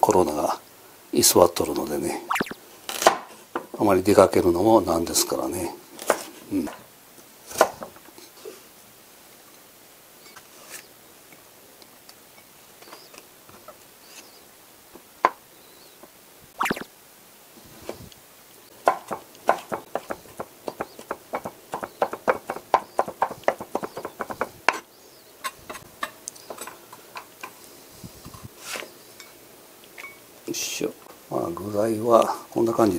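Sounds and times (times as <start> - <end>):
knife chopping on wooden board: 18.8 - 24.8.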